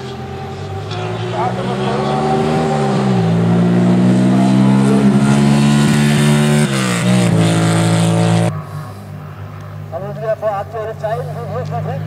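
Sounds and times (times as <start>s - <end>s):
motorcycle accelerating past: 0.0s - 8.5s.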